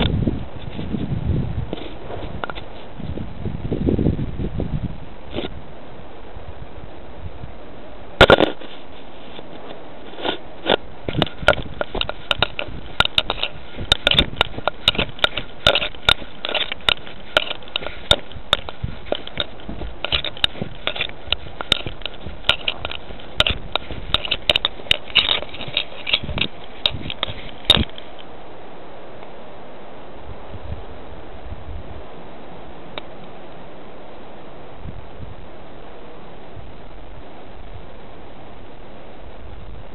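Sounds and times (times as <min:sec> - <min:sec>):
camera crackling against fur: 0:00.0 - 0:03.4, 0:05.2 - 0:05.6, 0:08.2 - 0:28.3.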